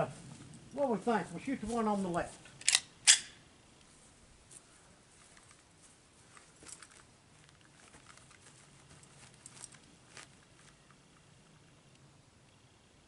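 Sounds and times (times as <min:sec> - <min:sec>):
footsteps on grass: 0:00.0 - 0:02.6, 0:03.8 - 0:10.9.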